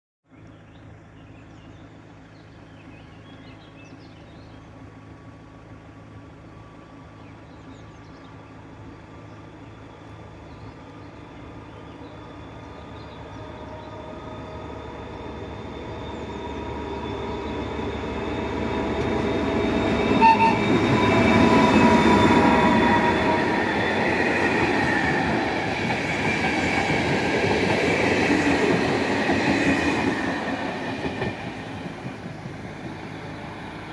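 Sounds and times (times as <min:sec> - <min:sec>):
diesel locomotive engine drone: 0:00.3 - 0:33.9
train wheels clattering on rails: 0:16.6 - 0:33.6
brief high tone: 0:20.1 - 0:23.3.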